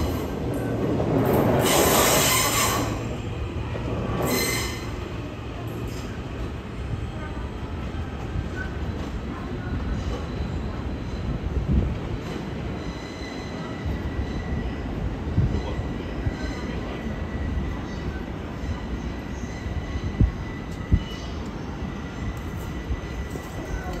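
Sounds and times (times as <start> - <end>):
train cars rumbling on rails: 0.0 - 24.0
high wheel squeal: 1.6 - 3.1, 4.2 - 5.0.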